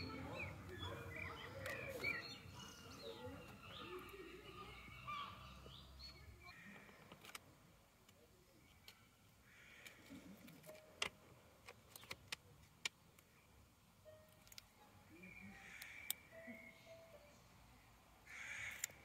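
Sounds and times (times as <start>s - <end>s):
faint bird chirps: 0.0s - 7.1s, 15.1s - 17.9s
tweezers and plastic sheet clicks: 7.0s - 7.4s, 9.8s - 13.3s, 14.3s - 14.7s, 18.7s - 19.0s.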